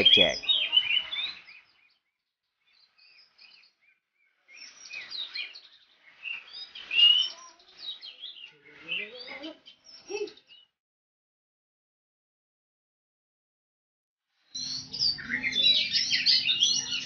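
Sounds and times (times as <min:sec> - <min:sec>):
bird singing: 0:00.0 - 0:10.8, 0:14.5 - 0:17.0.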